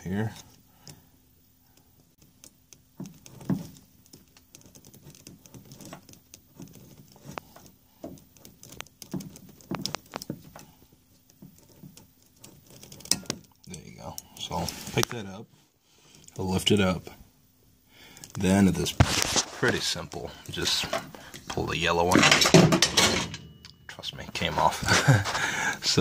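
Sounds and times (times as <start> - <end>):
small plastic clicks and scratches: 2.2 - 15.2.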